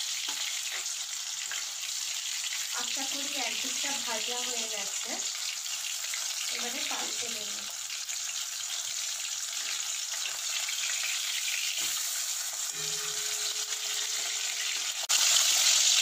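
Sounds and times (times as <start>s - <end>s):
fish sizzling in hot oil: 0.0s - 16.0s
metal spatula in pan: 11.7s - 16.0s.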